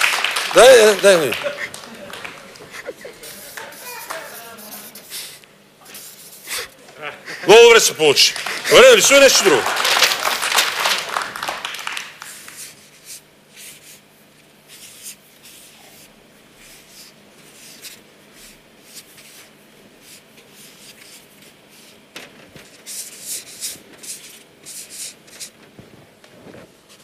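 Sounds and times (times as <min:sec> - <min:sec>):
markers scratching on paper: 0:03.2 - 0:06.7, 0:12.2 - 0:25.6.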